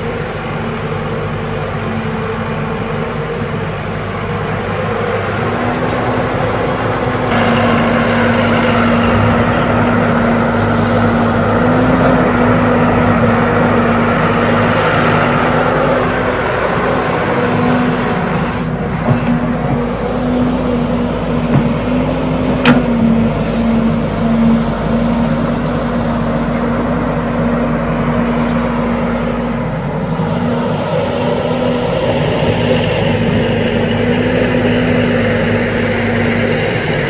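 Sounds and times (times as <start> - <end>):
excavator diesel engine running: 0.0 - 37.0.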